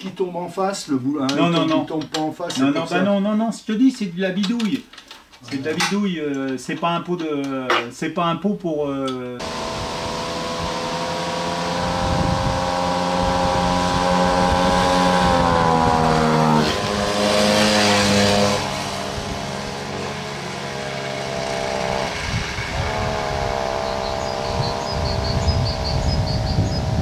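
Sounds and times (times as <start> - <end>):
motorbike engine running: 9.4 - 27.0.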